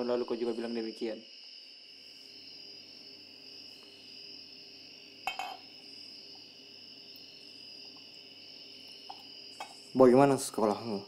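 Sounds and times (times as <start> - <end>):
crickets chirring: 0.0 - 11.0
glass clink: 5.2 - 5.7.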